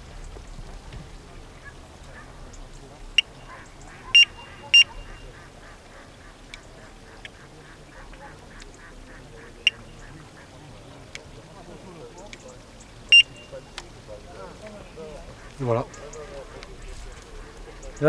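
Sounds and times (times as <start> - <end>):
faint clicks: 0.1 - 18.0
bite alarm short high beeps: 4.2 - 5.2, 13.1 - 13.6.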